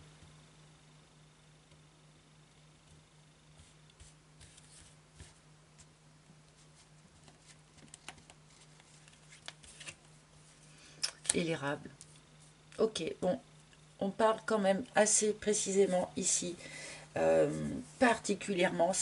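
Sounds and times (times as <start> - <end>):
cards ticking and rustling: 7.2 - 10.0.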